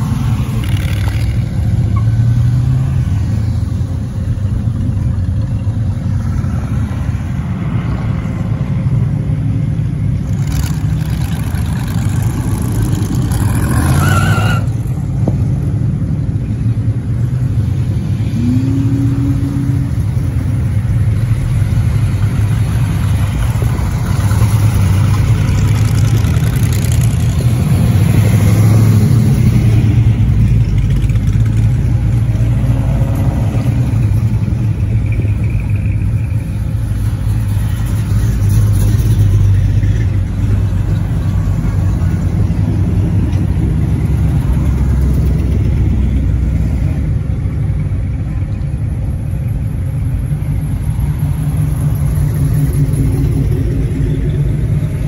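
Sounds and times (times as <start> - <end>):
car engines rumbling: 0.0 - 55.0
engine revving: 10.2 - 14.8.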